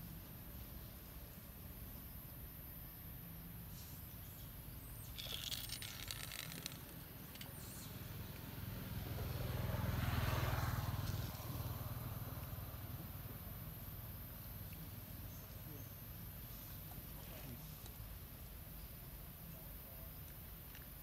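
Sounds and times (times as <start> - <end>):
vehicle engine passing by: 7.3 - 14.1.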